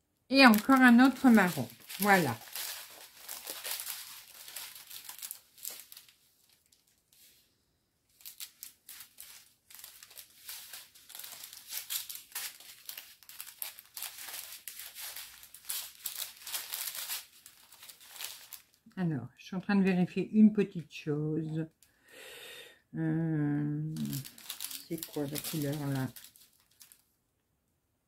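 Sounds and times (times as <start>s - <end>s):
plastic bags crinkling: 0.3s - 7.4s, 8.1s - 18.8s, 23.9s - 27.1s.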